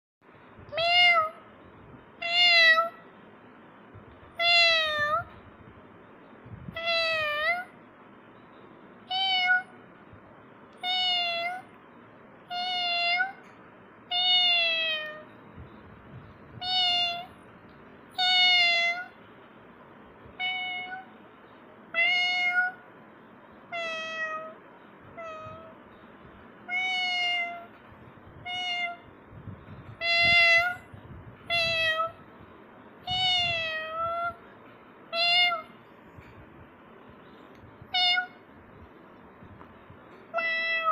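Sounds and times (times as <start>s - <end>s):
cat meowing: 0.7s - 1.4s, 2.2s - 3.0s, 4.4s - 5.3s, 6.7s - 7.8s, 9.1s - 9.8s, 10.8s - 11.7s, 12.5s - 13.5s, 14.1s - 15.3s, 16.6s - 17.4s, 18.2s - 19.2s, 20.4s - 21.1s, 21.9s - 22.9s, 23.7s - 25.8s, 26.6s - 27.8s, 28.4s - 29.1s, 29.9s - 30.9s, 31.5s - 32.2s, 33.0s - 34.4s, 35.1s - 35.8s, 37.8s - 38.5s, 40.2s - 40.9s.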